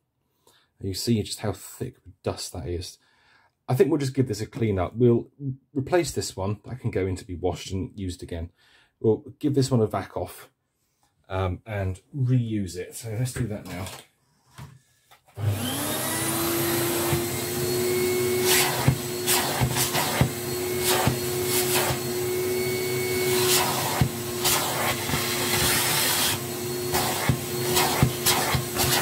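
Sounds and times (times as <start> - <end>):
vacuum cleaner running: 15.4 - 29.0.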